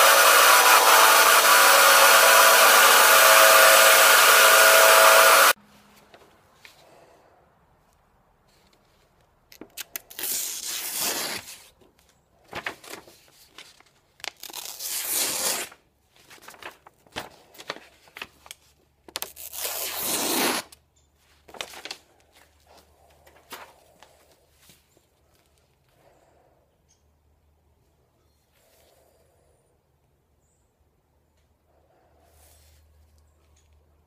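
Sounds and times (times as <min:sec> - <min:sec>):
knife slicing paper: 0:09.9 - 0:11.7, 0:14.3 - 0:15.8, 0:19.2 - 0:20.8.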